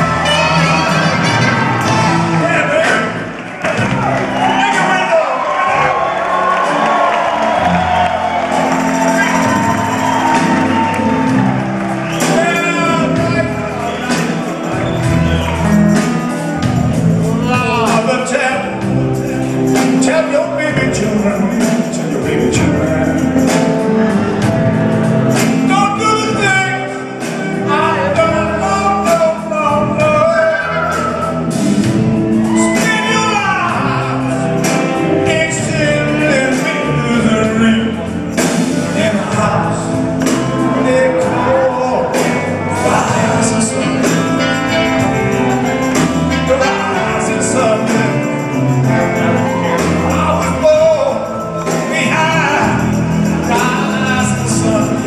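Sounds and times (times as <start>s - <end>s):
live rock band playing: 0.0s - 55.0s
man singing into a microphone: 17.3s - 18.8s, 19.8s - 23.5s, 25.7s - 31.2s, 35.2s - 44.4s, 46.4s - 48.6s, 49.2s - 55.0s.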